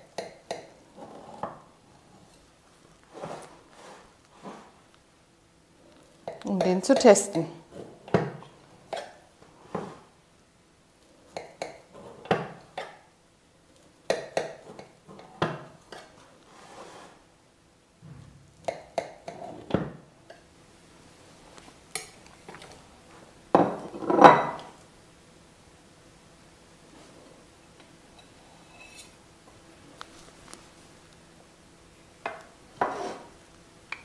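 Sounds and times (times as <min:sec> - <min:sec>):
knife scraping glass plate: 0:28.2 - 0:29.2, 0:32.8 - 0:33.3.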